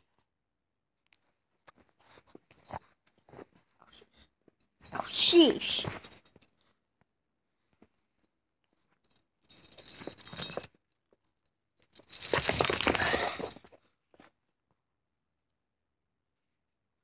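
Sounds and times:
dog collar jangling: 4.8 - 6.7, 8.8 - 13.8.

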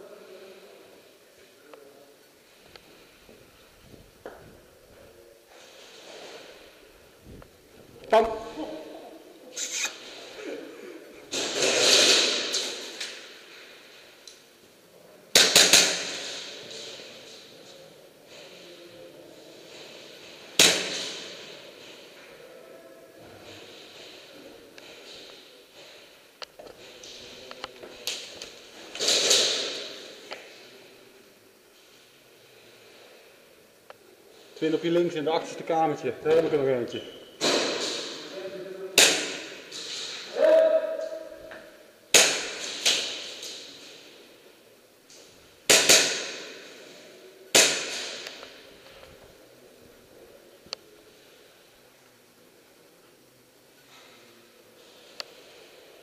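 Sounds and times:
airsoft gunshots echoing in hall: 11.2 - 14.2, 15.3 - 17.5, 19.7 - 22.5, 28.0 - 30.9, 35.9 - 49.3.

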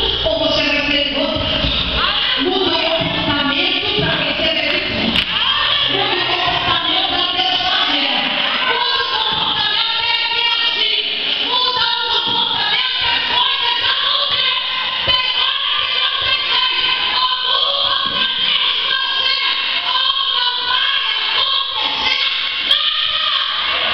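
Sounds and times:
woman singing into microphone: 2.0 - 23.9.

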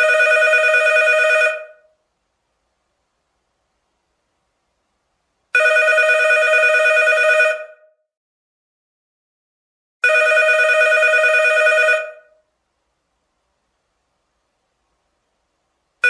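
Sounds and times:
telephone bell ringing: 0.0 - 1.9, 5.6 - 7.9, 10.0 - 12.3.

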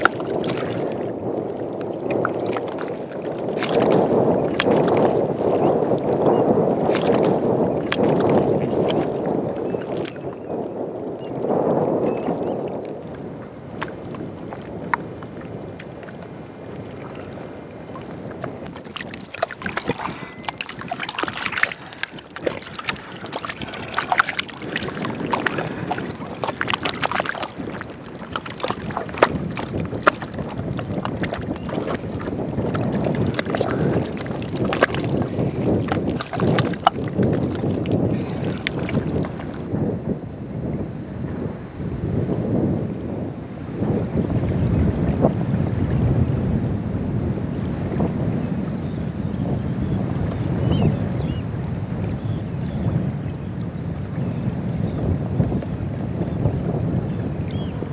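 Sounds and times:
mud squelching and sloshing: 0.0 - 1.1, 2.0 - 10.3, 13.7 - 39.6
wind on microphone: 0.0 - 57.9.

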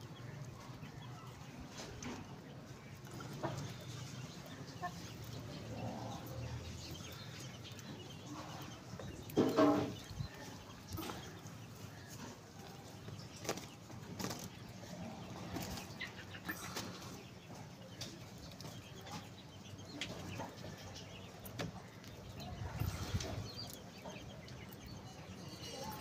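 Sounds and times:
chickens clucking: 0.0 - 26.0.

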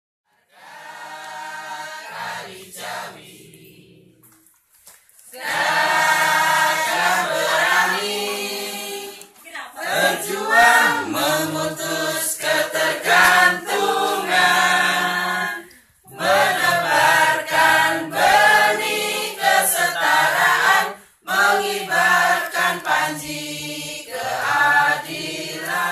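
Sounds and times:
group of voices singing: 0.3 - 4.4, 5.3 - 25.9.

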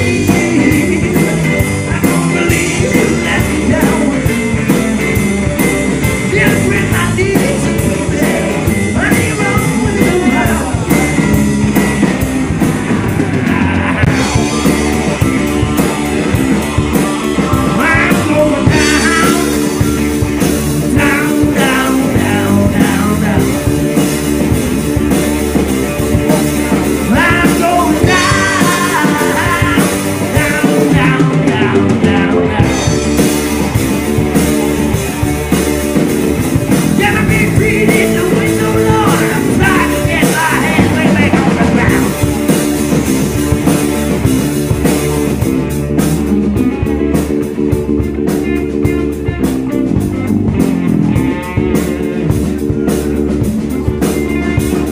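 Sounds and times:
man singing: 0.0 - 24.2, 26.7 - 33.3, 36.6 - 42.9
live rock band playing: 0.0 - 54.9.

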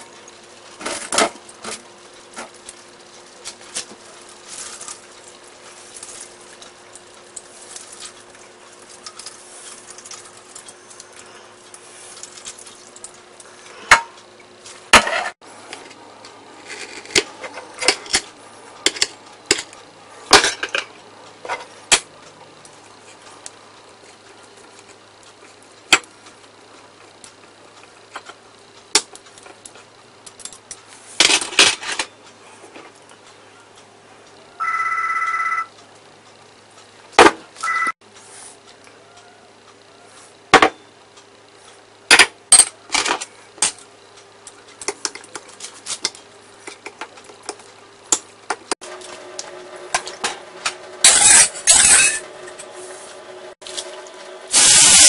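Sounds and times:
faint steady hum: 0.0 - 55.0
utensils clinking: 51.0 - 52.7.

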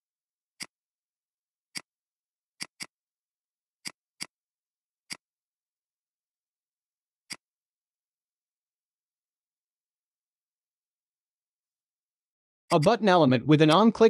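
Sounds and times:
computer mouse clicking: 2.6 - 2.9.

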